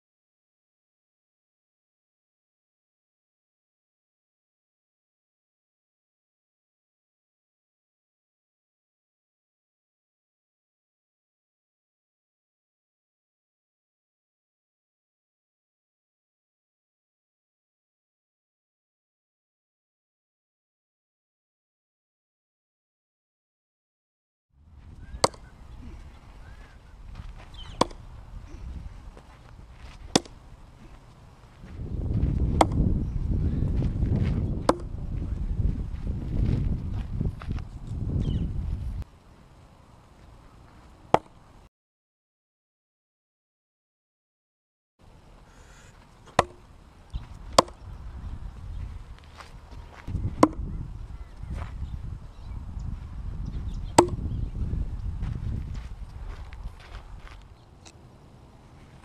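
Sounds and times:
knife striking wooden post: 25.2 - 25.5, 27.7 - 28.6, 30.1 - 30.4, 32.6 - 32.9, 34.7 - 34.9, 41.1 - 41.4, 46.3 - 46.6, 47.5 - 47.8, 50.4 - 50.7, 54.0 - 54.2.

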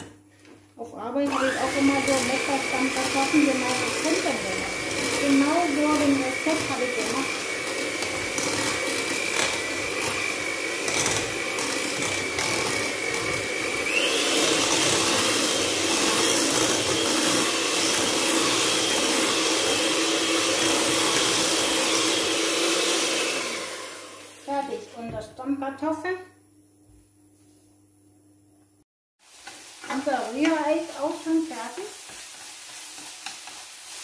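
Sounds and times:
electric hand mixer whining: 1.3 - 24.9.

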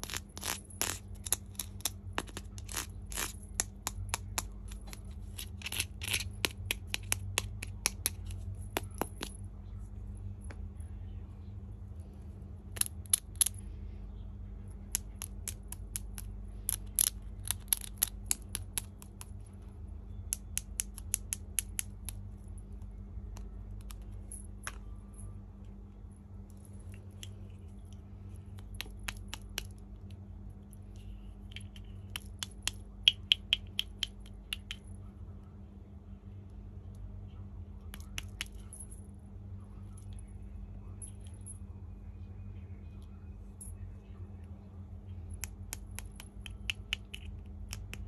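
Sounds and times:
steady low hum: 0.0 - 48.0
plastic toy pieces clicking: 14.9 - 19.3.

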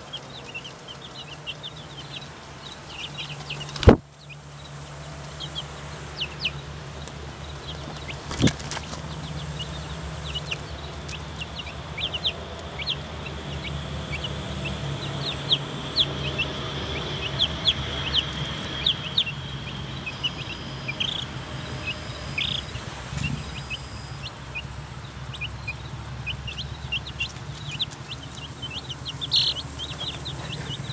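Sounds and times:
baby chicks peeping: 0.0 - 30.9
steady low hum: 0.0 - 30.9.

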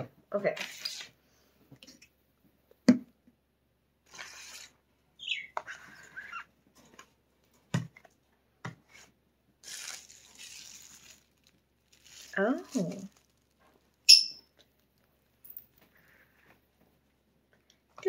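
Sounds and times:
bird chirping: 5.2 - 6.5, 14.0 - 14.5
rustling: 8.8 - 17.2.

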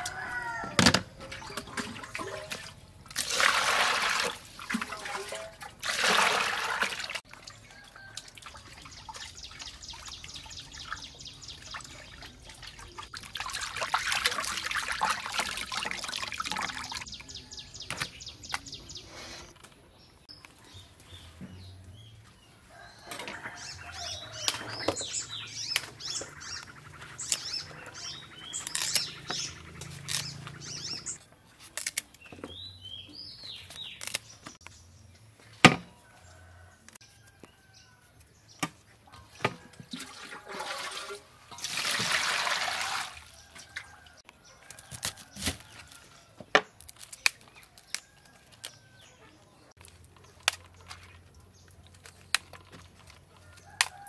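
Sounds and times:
water pouring: 1.2 - 17.1, 39.8 - 43.9
birds chirping: 7.5 - 15.7, 16.4 - 31.5
stalks snapping: 28.5 - 30.6, 31.6 - 32.2, 33.6 - 34.7, 46.6 - 48.8, 49.8 - 54.0.

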